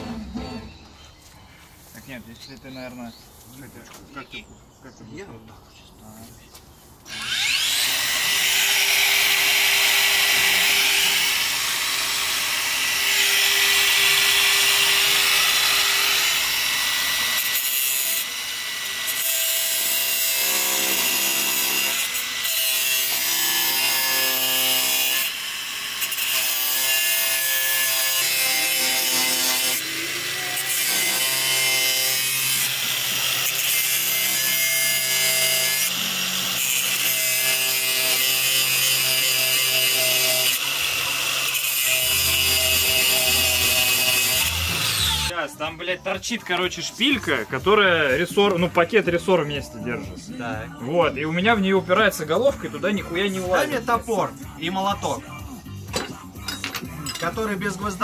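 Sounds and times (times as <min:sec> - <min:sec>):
angle grinder cutting metal: 0:07.1 - 0:45.4.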